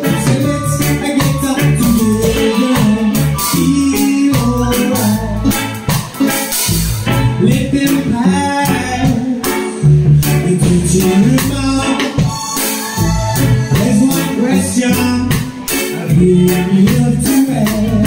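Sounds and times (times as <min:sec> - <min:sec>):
drum kit with cymbal hits: 0:00.0 - 0:18.0
electric bass guitar: 0:00.0 - 0:18.0
electric keyboard: 0:00.0 - 0:18.0.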